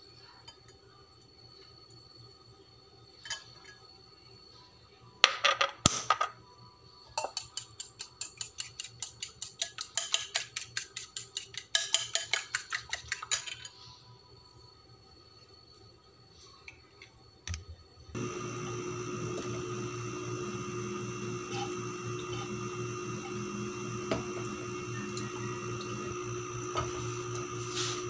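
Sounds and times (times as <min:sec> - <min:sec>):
fork whisking in a bowl: 0:07.4 - 0:13.7, 0:26.7 - 0:28.0.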